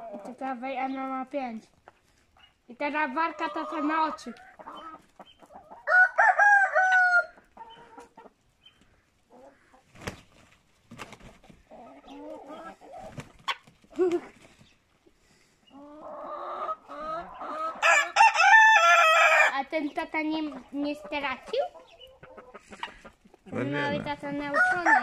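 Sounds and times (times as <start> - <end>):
chickens clucking: 0.0 - 25.0
rooster crowing: 5.8 - 7.4, 17.8 - 19.6, 24.6 - 25.0.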